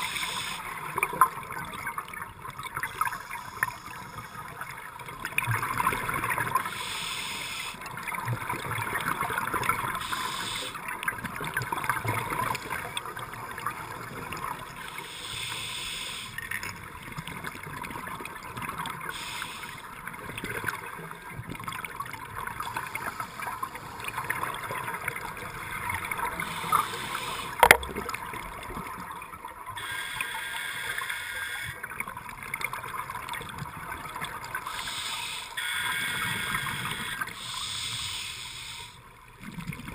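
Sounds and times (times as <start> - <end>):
underwater crackling hiss: 0.0 - 1.1, 6.3 - 8.0, 9.9 - 10.8, 14.8 - 16.4, 19.0 - 19.9, 26.2 - 27.9, 29.8 - 31.8, 34.5 - 39.0
scuba exhaust bubbles: 16.8 - 29.0.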